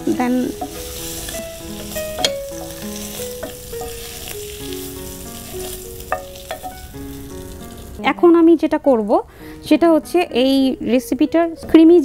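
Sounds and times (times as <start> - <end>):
mushrooms sizzling in oil: 0.0 - 8.8
soft background melody: 0.0 - 12.0.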